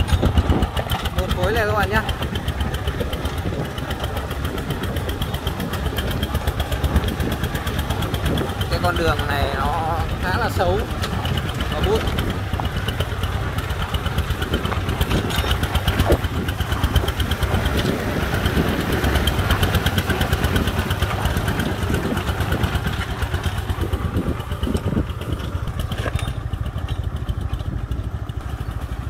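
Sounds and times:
diesel engine chugging: 0.0s - 29.0s.

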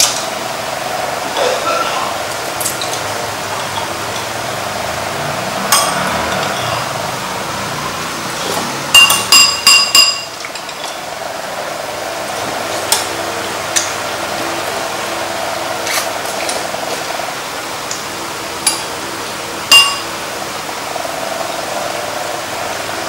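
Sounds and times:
steady background noise: 0.0s - 23.0s
tableware clinking: 5.7s - 6.9s, 8.4s - 11.0s, 19.7s - 20.1s.

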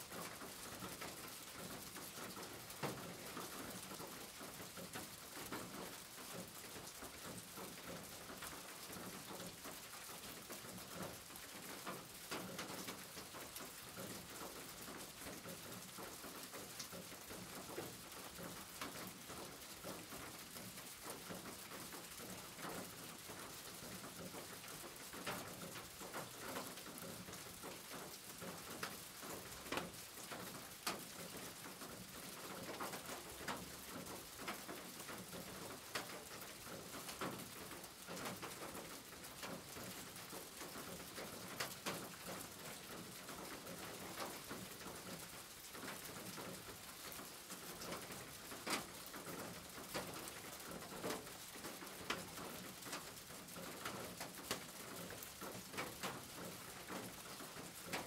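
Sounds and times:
rain on a tin roof: 0.0s - 58.0s.

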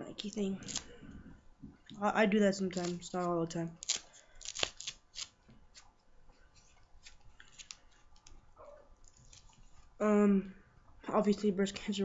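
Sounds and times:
velcro strap peeling: 0.2s - 0.9s, 2.8s - 5.9s.

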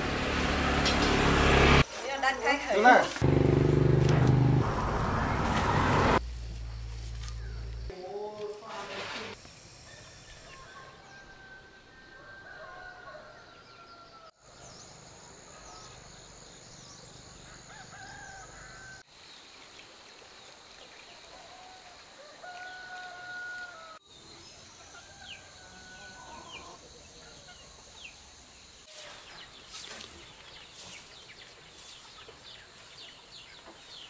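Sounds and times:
rooster crowing: 9.9s - 14.4s, 17.4s - 19.0s, 21.3s - 24.0s, 24.8s - 26.9s
small birds chirping: 26.2s - 34.0s.

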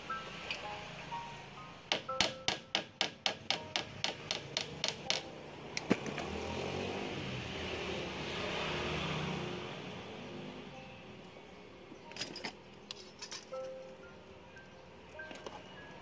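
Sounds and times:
hammer tapping wire on iron: 1.9s - 5.3s.

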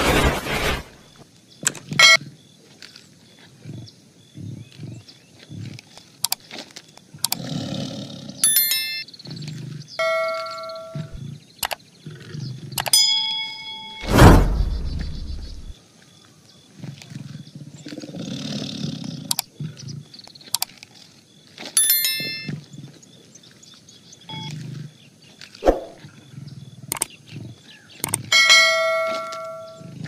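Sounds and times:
tiger growling: 1.8s - 6.2s, 7.1s - 8.5s, 9.2s - 13.0s, 16.7s - 20.6s, 24.3s - 30.0s
sharp clicks: 6.2s - 6.4s, 11.6s - 11.8s, 20.5s - 20.8s, 26.9s - 27.1s, 28.0s - 28.3s
bell chime ringing: 8.4s - 9.0s, 10.0s - 11.2s, 12.9s - 14.0s, 21.8s - 22.5s, 28.4s - 29.8s.

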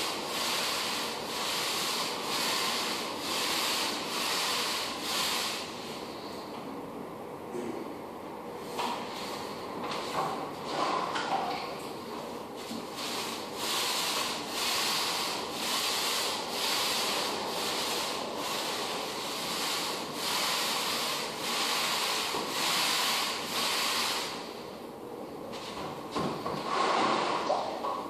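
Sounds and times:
applicator pad scrubbing floor: 0.0s - 6.2s, 12.6s - 24.4s, 25.6s - 27.7s.

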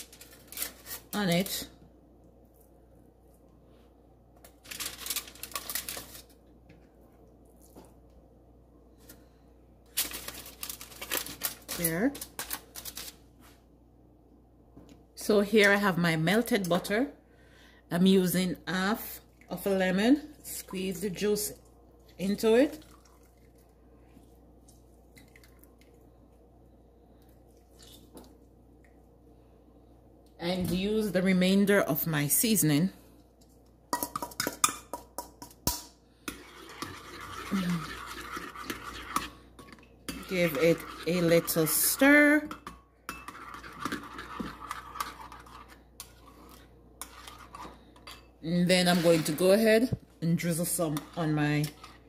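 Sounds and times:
aluminium foil crinkling: 0.0s - 1.6s, 4.4s - 6.4s, 9.9s - 13.2s
low steady hum: 0.0s - 52.0s.

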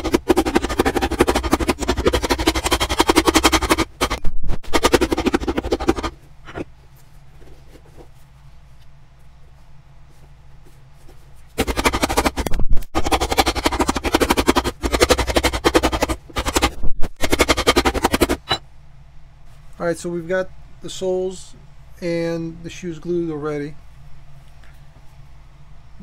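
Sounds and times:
hammer pounding leather sole: 0.0s - 6.1s, 11.6s - 18.6s.

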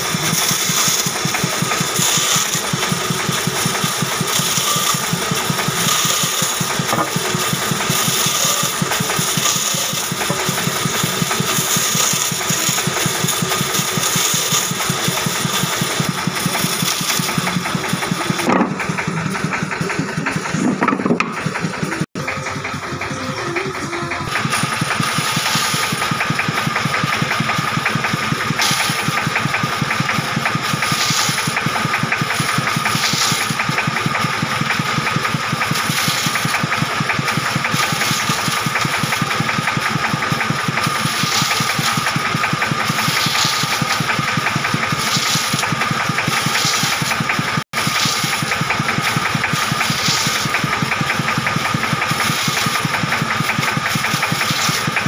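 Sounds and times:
saw cutting wood hiss: 0.0s - 22.8s, 23.7s - 55.0s
bandsaw droning: 0.0s - 55.0s.

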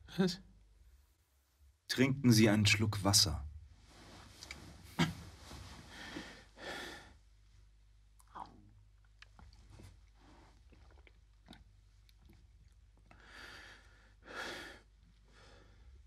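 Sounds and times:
man breathing heavily: 5.8s - 7.3s, 13.2s - 16.0s
swallowing and mouth clicks: 8.1s - 13.2s.

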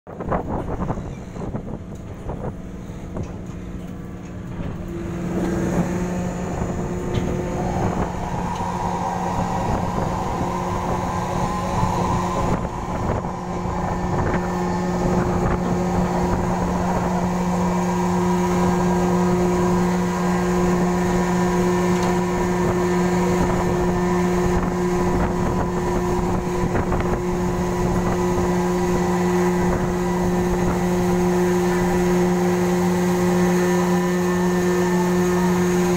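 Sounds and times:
ship engines humming: 0.3s - 35.9s.

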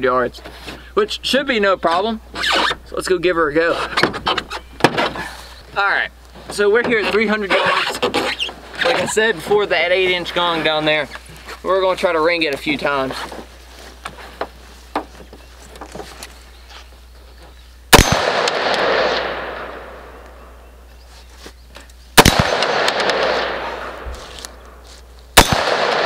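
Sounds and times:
rifle shots with echo: 17.9s - 20.2s, 22.2s - 24.0s, 25.4s - 26.0s.

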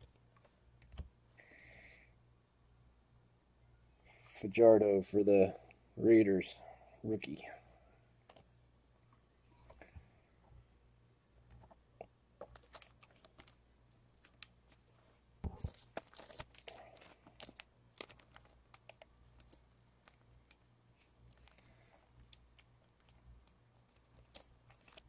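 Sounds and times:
trading cards clicking and crinkling: 12.4s - 25.0s.

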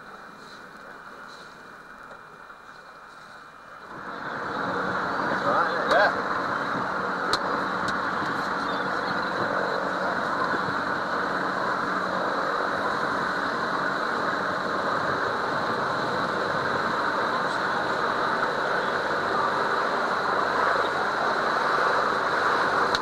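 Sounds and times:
boat engine droning: 0.0s - 23.0s
wind and water noise: 3.8s - 23.0s.

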